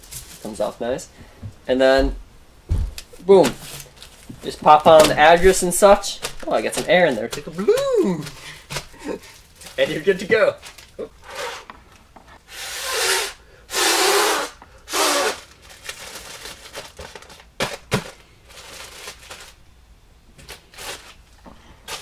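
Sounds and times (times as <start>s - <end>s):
plastic crinkling: 3.0s - 12.0s, 15.0s - 19.6s, 20.4s - 22.0s
plastic mailer ripping: 3.1s - 11.6s, 12.5s - 19.6s, 20.4s - 21.2s, 21.8s - 22.0s.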